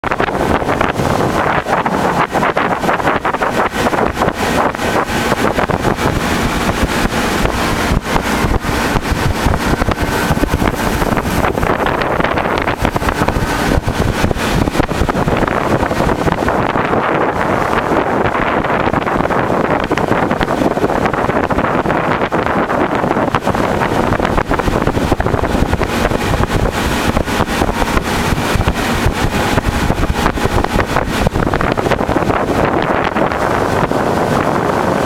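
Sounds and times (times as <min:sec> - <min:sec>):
boat motor drone: 0:00.0 - 0:35.0
wind buffeting microphone: 0:00.0 - 0:35.0.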